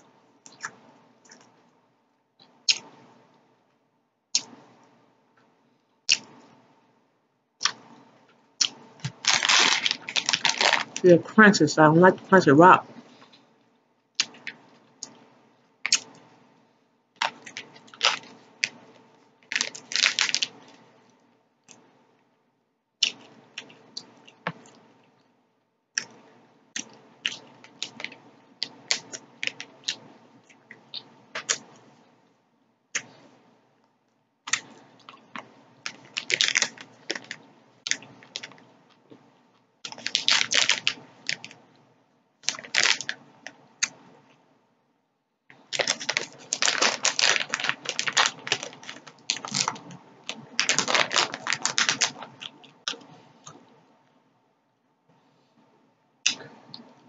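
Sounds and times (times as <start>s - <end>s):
chewing crunchy gummy candy: 8.6s - 11.1s, 17.2s - 20.8s, 23.0s - 25.2s, 26.8s - 31.7s, 34.4s - 39.2s, 39.8s - 41.6s, 42.4s - 43.2s, 45.6s - 53.7s.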